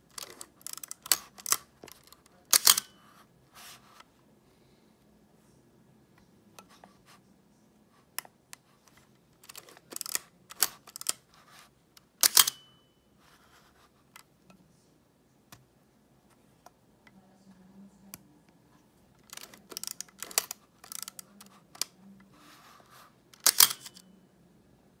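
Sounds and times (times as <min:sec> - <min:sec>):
camera mechanism clicking: 0:00.1 - 0:02.9, 0:08.9 - 0:11.2, 0:12.2 - 0:12.6, 0:19.2 - 0:21.9, 0:23.4 - 0:24.0.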